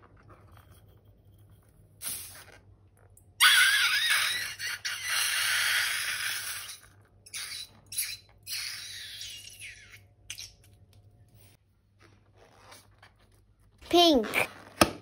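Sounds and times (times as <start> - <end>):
balloon neck squealing: 3.4 - 10.5.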